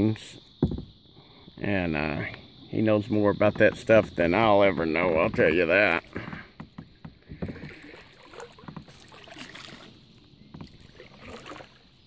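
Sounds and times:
kayak knocking: 0:00.6 - 0:01.0, 0:03.0 - 0:11.7
water splashing: 0:02.8 - 0:12.0.

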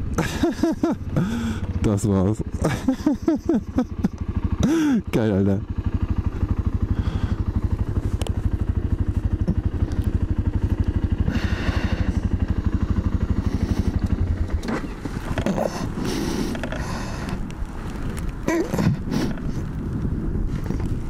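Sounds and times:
motorcycle engine idling: 0:00.0 - 0:21.0
rustling and clattering on bike: 0:05.8 - 0:21.0.

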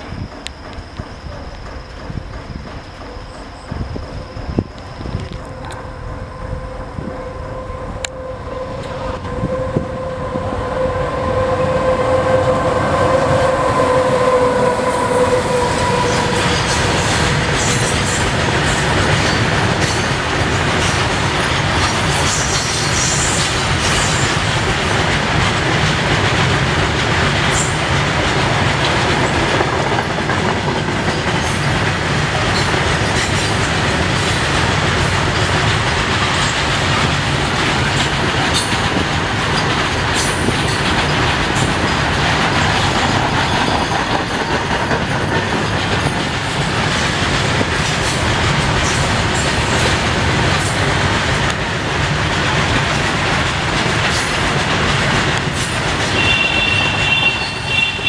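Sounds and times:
train wheels rumbling on rail: 0:00.0 - 0:58.0
wheels clicking on rail joints: 0:12.9 - 0:58.0.

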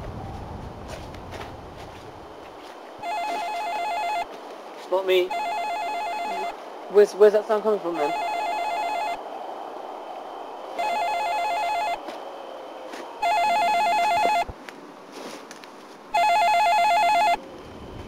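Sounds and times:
mobile phone ringing: 0:03.0 - 0:04.3, 0:05.2 - 0:06.6, 0:08.0 - 0:09.2, 0:10.8 - 0:12.0, 0:13.2 - 0:14.5, 0:16.1 - 0:17.4.

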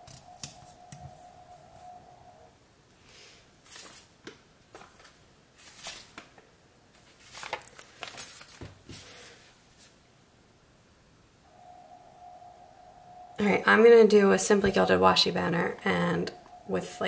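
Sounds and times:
paper rustling: 0:03.6 - 0:04.1, 0:04.7 - 0:10.0.

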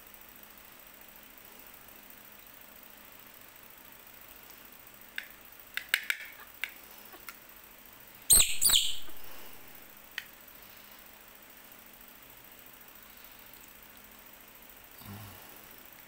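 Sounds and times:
baby monkey chirping and squealing: 0:08.3 - 0:09.4.

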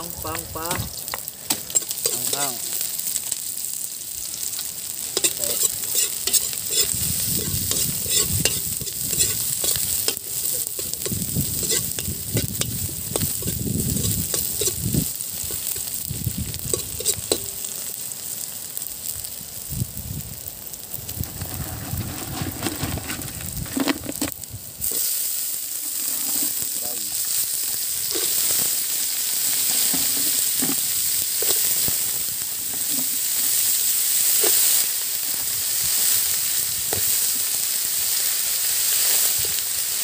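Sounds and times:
garlic sizzling in hot oil: 0:00.0 - 0:40.0
metal ladle scraping a wok: 0:01.7 - 0:02.9, 0:05.1 - 0:16.0, 0:16.7 - 0:17.6, 0:21.4 - 0:26.7.

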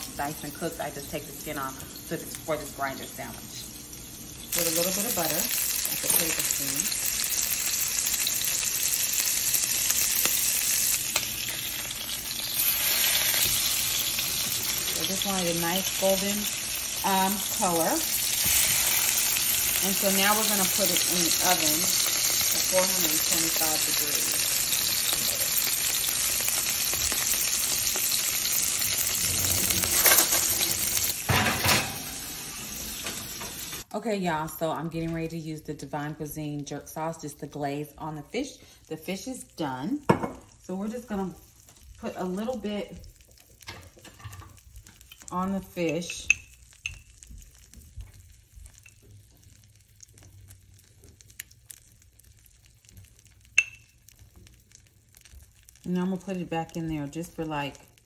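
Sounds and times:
fish sizzling in a frying pan: 0:00.0 - 0:33.9, 0:38.4 - 0:58.0
small crackles: 0:46.0 - 0:56.7.

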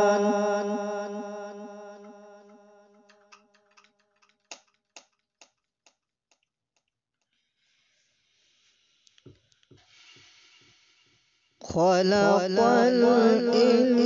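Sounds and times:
faint hiss: 0:07.6 - 0:11.7.

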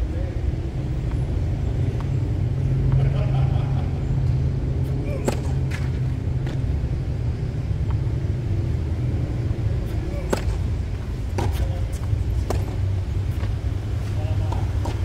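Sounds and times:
steady low rumble: 0:00.0 - 0:15.0
tennis ball pops: 0:10.2 - 0:10.6.

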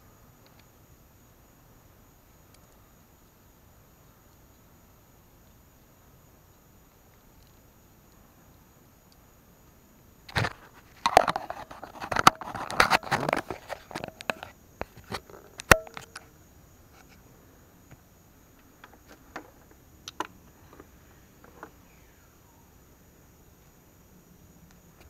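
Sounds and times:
camera handling rubs and knocks: 0:10.3 - 0:16.3.

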